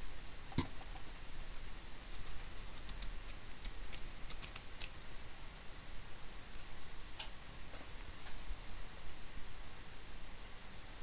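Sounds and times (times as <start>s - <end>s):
steel pick clicking and scratching: 2.7s - 4.9s.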